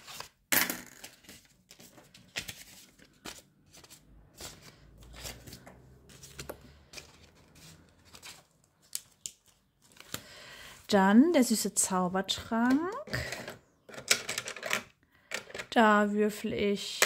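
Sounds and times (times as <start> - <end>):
paper rustling and crinkling: 1.0 - 10.3.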